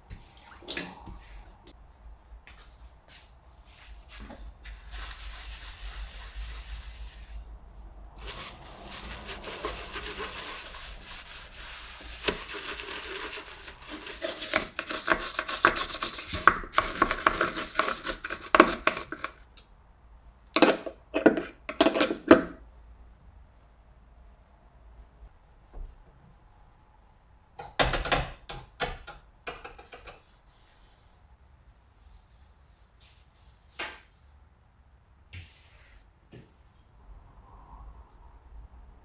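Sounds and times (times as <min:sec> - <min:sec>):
sponge scrubbing metal sink: 0:04.0 - 0:07.4, 0:08.2 - 0:19.4.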